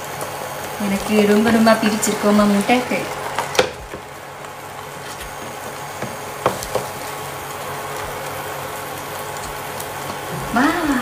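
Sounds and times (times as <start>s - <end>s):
egg sizzling in oil: 0.0s - 11.0s
wooden spatula tapping pan: 6.0s - 7.0s.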